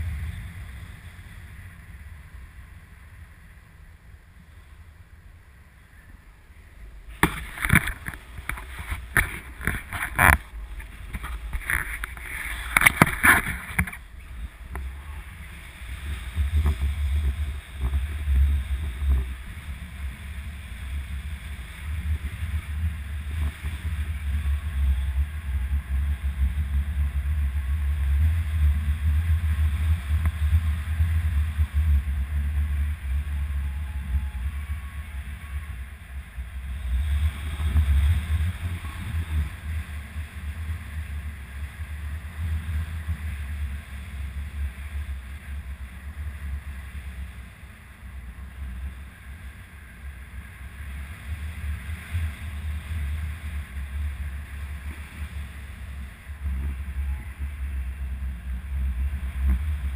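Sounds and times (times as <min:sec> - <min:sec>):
wind buffeting microphone: 0:00.0 - 0:59.9.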